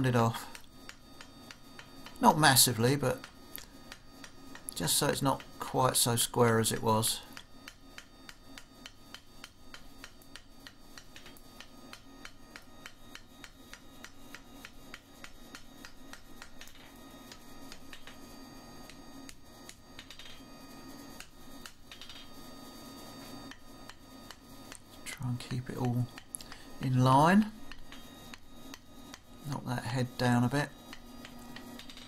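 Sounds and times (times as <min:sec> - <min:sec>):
hammer striking hot steel on anvil: 0:07.4 - 0:18.2.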